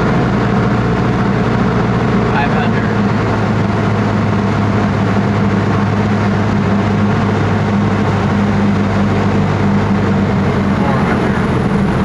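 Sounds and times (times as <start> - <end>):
small airplane engine droning: 0.0 - 12.0.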